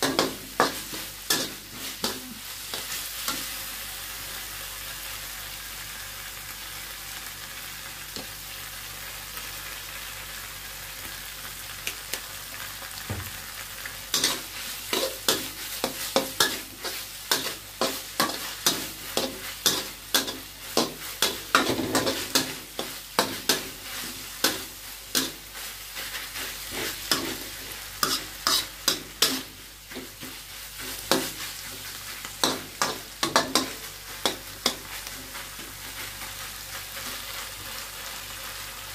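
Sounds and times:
spatula scraping a pan: 0.0 - 3.6, 14.1 - 37.6
vegetables sizzling in a wok: 0.0 - 38.9.

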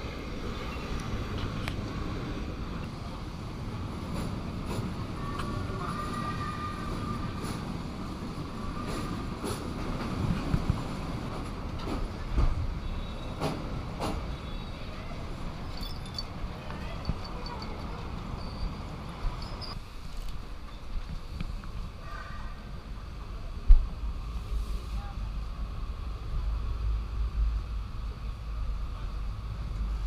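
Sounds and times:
train wheels rumbling on rails: 0.0 - 19.8
faint wheel squeal: 18.4 - 19.8.

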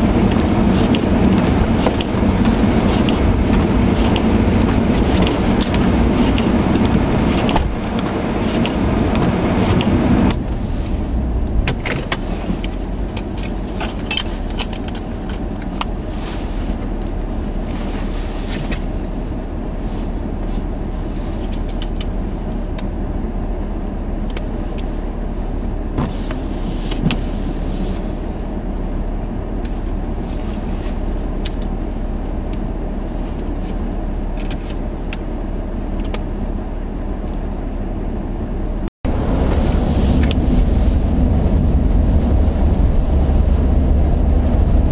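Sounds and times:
wind buffeting microphone: 0.0 - 14.1, 39.0 - 44.9.

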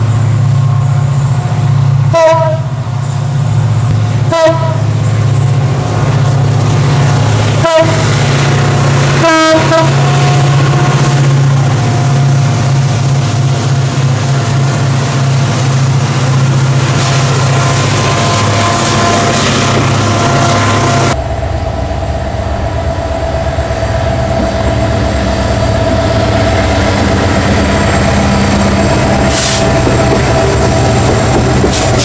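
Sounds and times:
locomotive engines droning: 0.0 - 32.0
train air horn blasts: 2.1 - 2.7, 4.3 - 4.9, 7.6 - 8.1, 9.2 - 11.0.

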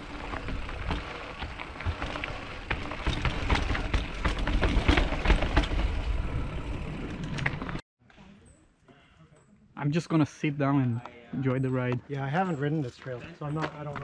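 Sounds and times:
bike clicks and rattles: 0.0 - 7.8
bike tyres rumbling over rocks: 0.0 - 7.8.

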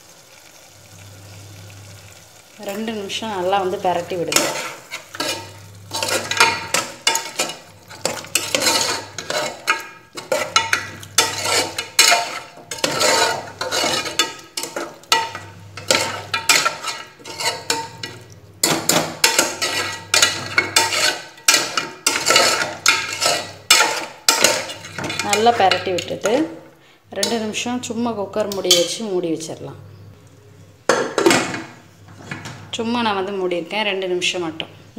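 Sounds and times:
liver frying: 0.0 - 29.0
metal spoon scraping pot: 3.4 - 26.5, 27.1 - 30.1.

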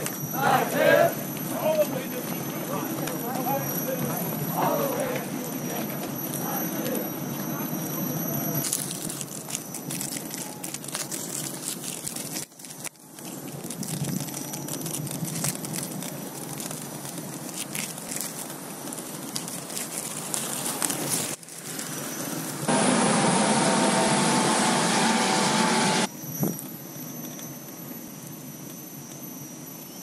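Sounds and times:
tyre rumble over paving: 0.0 - 22.8.

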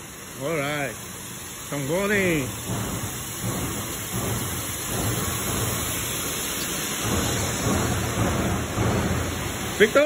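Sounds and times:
low machine hum: 0.0 - 10.0
floor scrubber rushing: 2.0 - 10.0.

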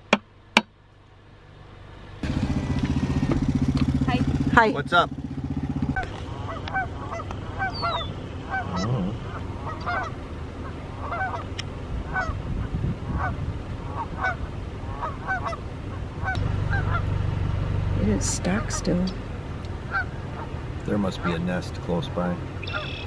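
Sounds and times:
geese honking: 5.8 - 23.0.

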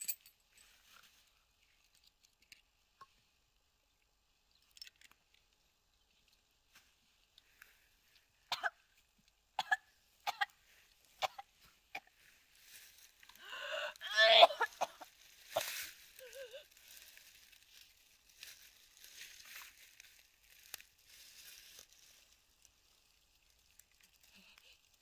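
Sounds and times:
breathy sounds: 12.0 - 17.3
person crying: 13.4 - 16.7.

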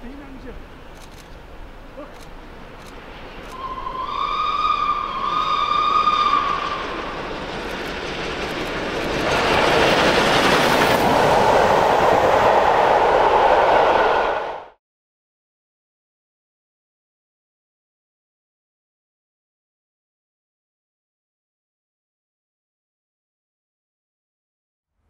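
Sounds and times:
train wheels rushing on rail: 0.0 - 14.8
steam locomotive whistle: 3.5 - 7.3.

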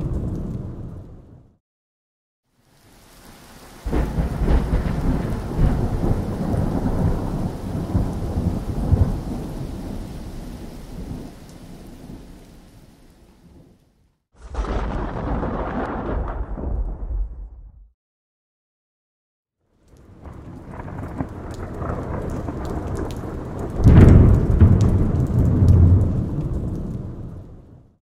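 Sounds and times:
sharp thunder claps: 3.8 - 9.9, 14.4 - 17.9, 20.1 - 27.6
rolling thunder: 3.8 - 12.4, 14.4 - 17.9, 20.1 - 27.9.

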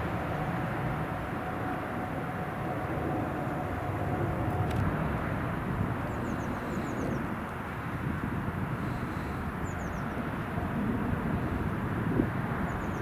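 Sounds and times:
jet airliner passing overhead: 0.0 - 13.0
small birds chirping: 9.6 - 10.2.

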